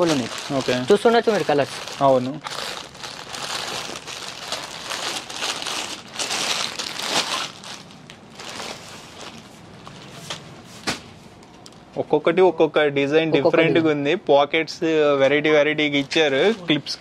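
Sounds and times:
clothes crinkling and rustling: 0.0 - 11.9, 15.9 - 17.0.

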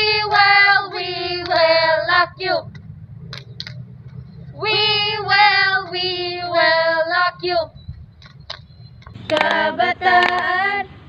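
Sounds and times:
voices singing together: 0.0 - 2.8, 4.4 - 7.8, 9.2 - 11.0.

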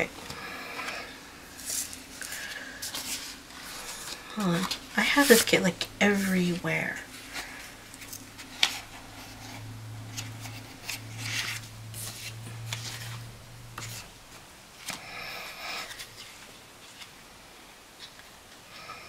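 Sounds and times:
paper rustling and shuffling: 0.0 - 17.3, 18.0 - 18.6
low steady hum: 0.0 - 19.0.

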